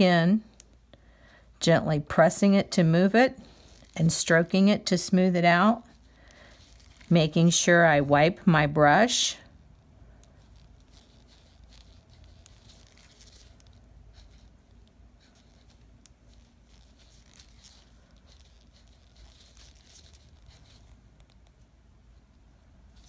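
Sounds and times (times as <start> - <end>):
low room hum: 0.0 - 23.0
brush scratching on nail: 10.2 - 21.6.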